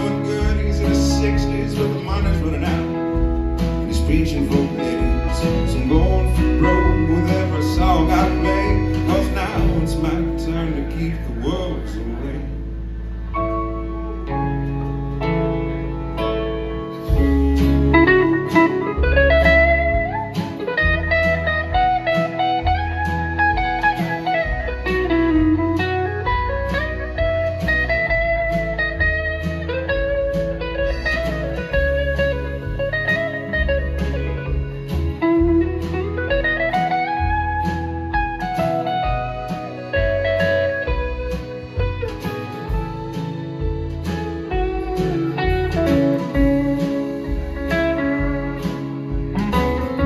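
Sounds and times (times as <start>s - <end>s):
bass guitar: 0.0s - 50.0s
lead guitar bending notes: 0.0s - 50.0s
strummed acoustic guitar: 0.0s - 50.0s
steady drum beat: 30.0s - 50.0s.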